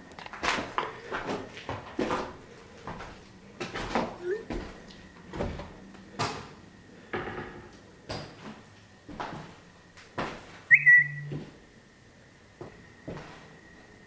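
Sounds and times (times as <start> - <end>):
slow footsteps: 0.0 - 6.5, 12.6 - 13.6
faint steady whine: 0.0 - 14.0
sharp high squeak: 10.7 - 11.3.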